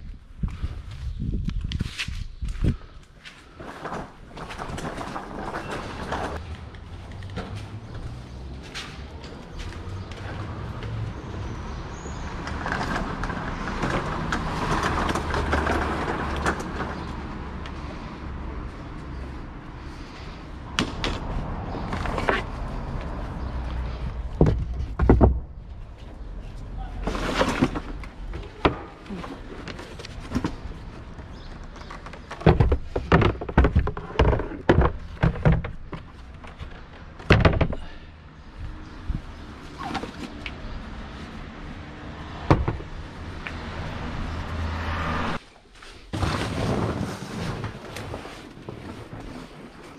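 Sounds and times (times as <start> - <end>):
trolley wheels rattling over paving: 3.6 - 6.4, 12.2 - 17.4.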